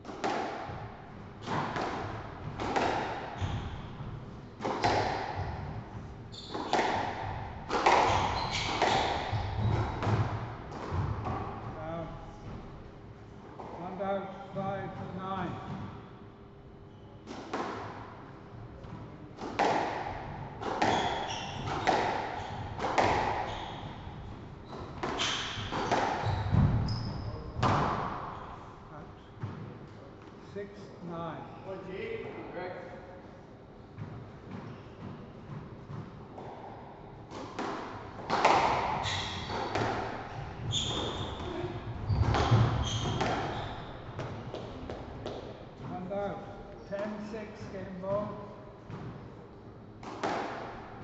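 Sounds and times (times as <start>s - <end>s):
squash ball hits: 0.0s - 11.8s, 18.9s - 28.4s, 34.0s - 46.0s, 50.0s - 50.9s
shoes squeaking on wooden floor: 6.3s - 6.9s, 7.9s - 10.0s, 20.8s - 27.5s, 38.9s - 45.3s.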